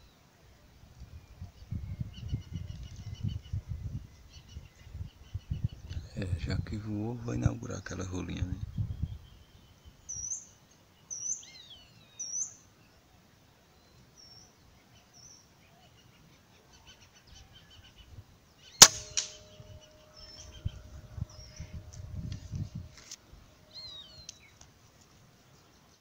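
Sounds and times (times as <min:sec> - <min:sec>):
small birds chirping: 0:01.0 - 0:22.9, 0:23.6 - 0:26.0
rifle shot: 0:18.8 - 0:20.1.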